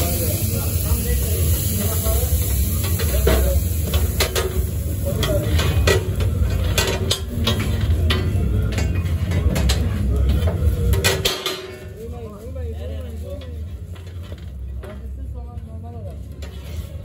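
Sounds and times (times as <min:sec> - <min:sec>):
food sizzling: 0:00.0 - 0:14.6
knives scraping on steel griddle: 0:16.3 - 0:17.0.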